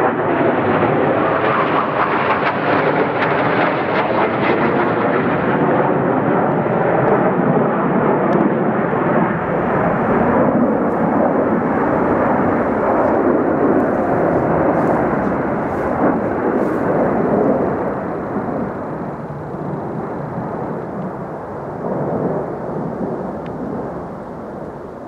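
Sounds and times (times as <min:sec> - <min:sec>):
jet engines overhead: 0:00.0 - 0:25.0.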